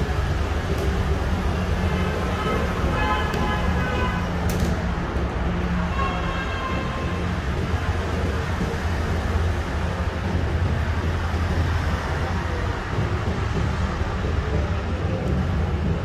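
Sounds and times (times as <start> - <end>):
machinery rumbling and humming: 0.0 - 16.0.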